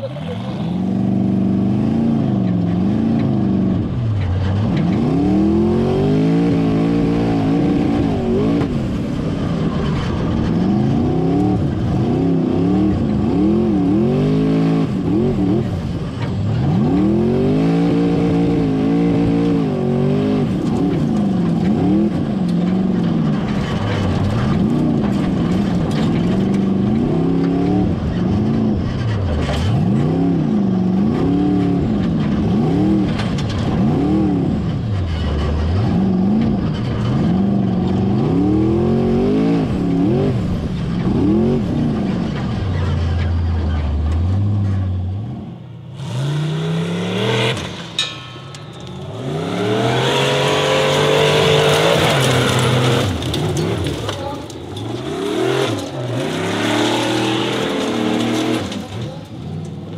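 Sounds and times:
car engine revving hard: 0.0 - 22.9, 44.3 - 48.0, 49.0 - 54.0, 54.8 - 58.9.

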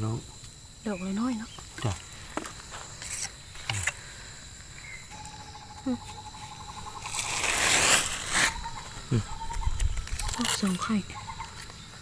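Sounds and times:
loud rustle: 7.1 - 8.6.

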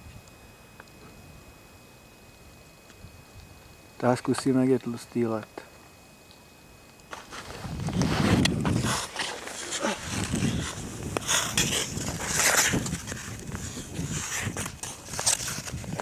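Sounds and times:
skate blades scraping on ice: 7.1 - 16.0.

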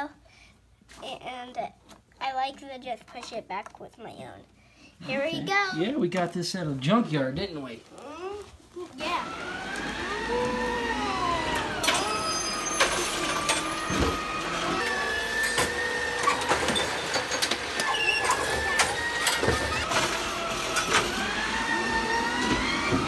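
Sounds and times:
garbage truck arm whine: 9.1 - 23.0.

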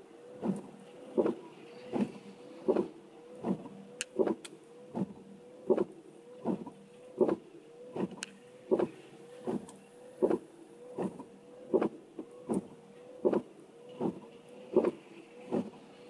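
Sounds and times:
steady motor hum: 0.0 - 16.0
windscreen wipers thumping: 0.4 - 7.4, 8.0 - 10.4, 11.0 - 14.2, 14.8 - 15.8.

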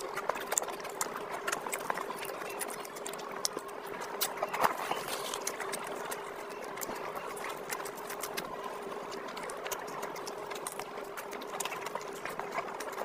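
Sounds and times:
wet chewing and lip-smacking: 0.0 - 13.0.

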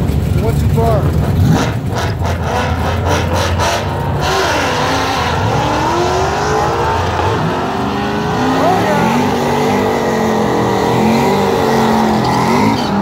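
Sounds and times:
engine rumble with crackles: 0.0 - 4.6
car accelerating hard: 0.2 - 13.0.

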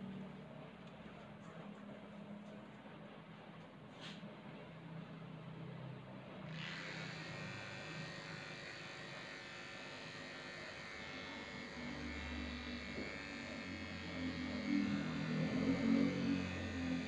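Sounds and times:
electric clippers buzzing: 6.5 - 17.0.

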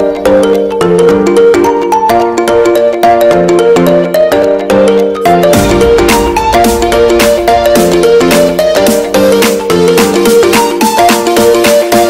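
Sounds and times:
melody of short repeated notes: 0.0 - 12.0
heavy beat and bass: 5.4 - 12.0.

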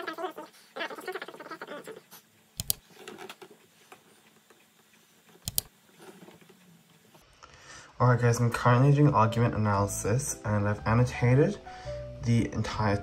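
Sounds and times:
stylus ticking on screen: 1.0 - 2.8, 4.4 - 5.8
sharp clicks: 2.5 - 2.8, 4.4 - 5.8.

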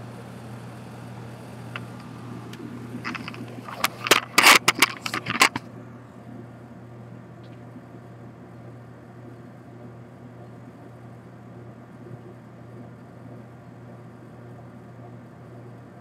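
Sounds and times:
steady low hum: 0.0 - 16.0
camera scraping and knocking on brick: 3.0 - 5.6.

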